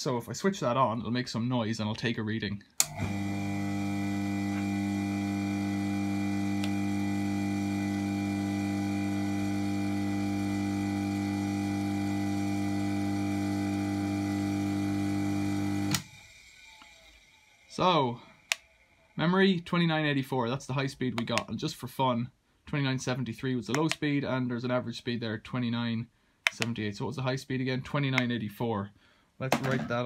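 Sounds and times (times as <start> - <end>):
electric motor humming: 2.8 - 17.7.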